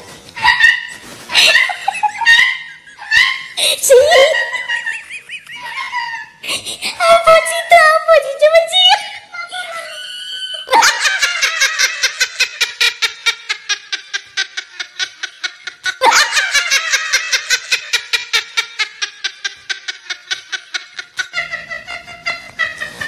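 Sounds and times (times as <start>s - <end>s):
high-pitched laughter: 0.4s - 7.7s, 9.4s - 23.0s.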